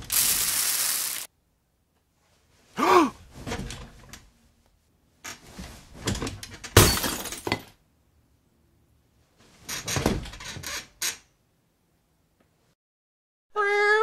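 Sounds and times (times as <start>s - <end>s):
breakable object smashing: 6.8s - 7.6s.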